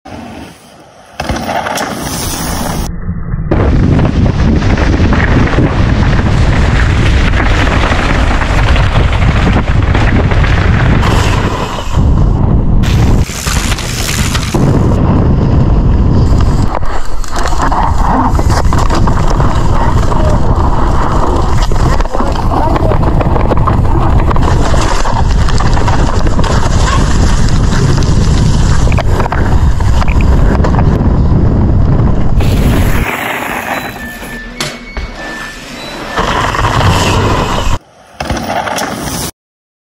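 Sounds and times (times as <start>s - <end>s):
wind rush on microphone: 2.2s - 34.4s
bike tyres rolling on dirt: 3.5s - 34.4s, 35.9s - 39.3s
tyres rushing on dirt: 32.4s - 34.5s, 35.2s - 39.3s.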